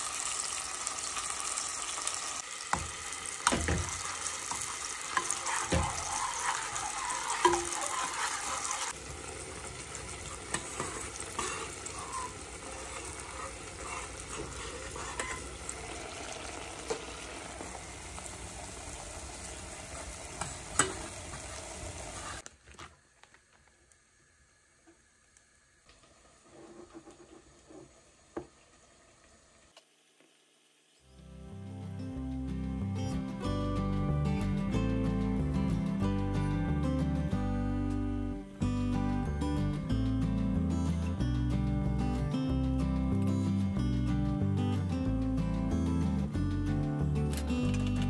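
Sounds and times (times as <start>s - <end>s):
food sizzling in hot oil: 0.0s - 22.4s, 24.0s - 31.2s.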